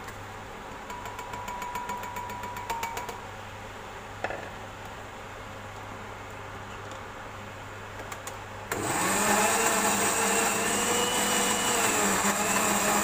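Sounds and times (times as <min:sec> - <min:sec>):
blender motor grinding: 0:08.7 - 0:13.0.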